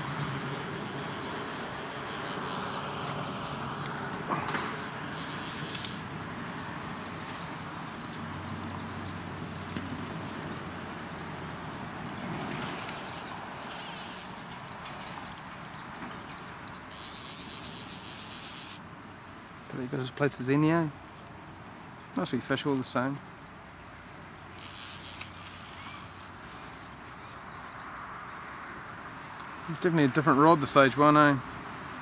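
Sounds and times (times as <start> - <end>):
high insect buzzing: 0.0 - 7.2, 10.6 - 18.9, 24.5 - 26.6
slow river: 0.0 - 32.0.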